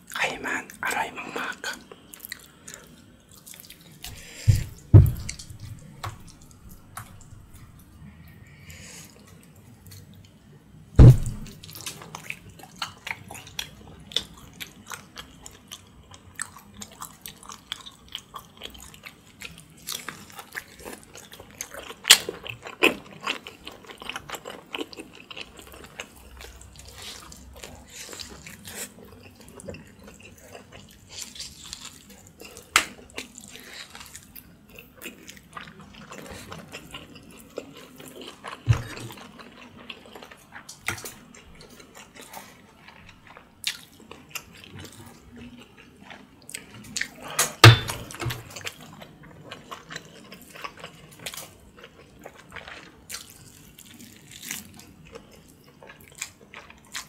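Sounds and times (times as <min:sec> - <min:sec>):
loud low thump: 0:04.5 - 0:05.4, 0:11.0 - 0:11.6
chewing and biting meat: 0:11.0 - 0:57.0.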